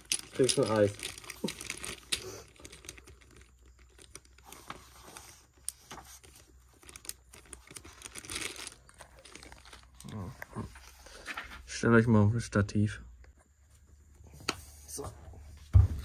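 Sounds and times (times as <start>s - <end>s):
small objects clicking and rustling: 0.0s - 10.7s.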